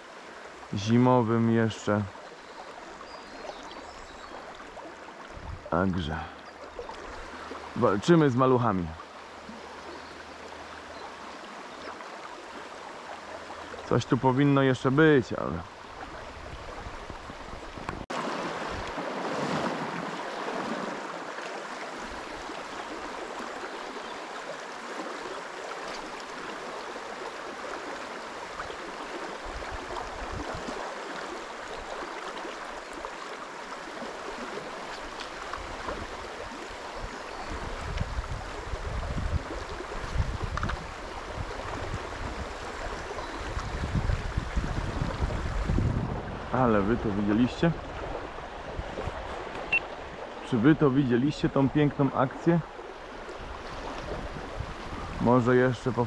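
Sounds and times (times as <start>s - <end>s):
river flowing over stones: 0.0s - 56.0s
wind buffeting microphone: 5.3s - 5.7s, 37.0s - 50.2s, 53.4s - 55.3s.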